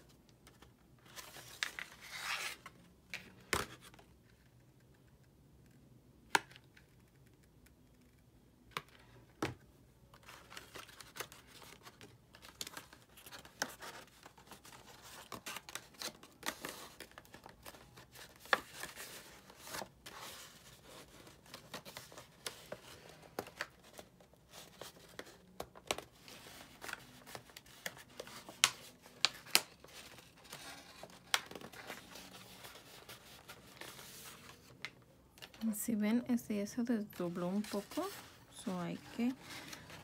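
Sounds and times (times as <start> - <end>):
paper rustling and crinkling: 0.5 - 4.0, 10.2 - 35.7, 37.2 - 40.0.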